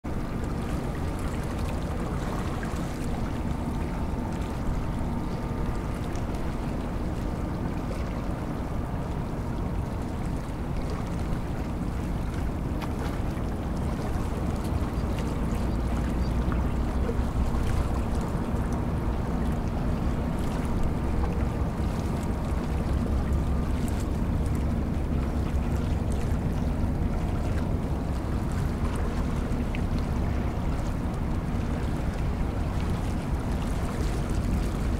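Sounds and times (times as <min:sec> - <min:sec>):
faint engine hum: 0:00.0 - 0:34.9.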